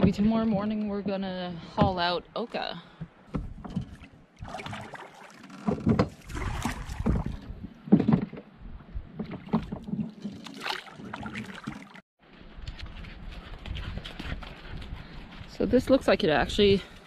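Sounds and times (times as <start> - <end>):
oars splashing: 0.0 - 12.0
wooden knocks of oars in oarlocks: 2.9 - 11.9.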